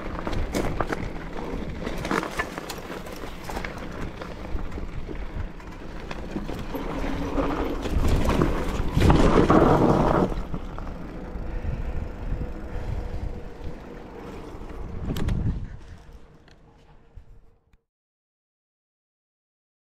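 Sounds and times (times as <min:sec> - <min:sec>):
mountain bike rattling: 0:00.0 - 0:17.4
wind buffeting microphone: 0:03.8 - 0:16.4.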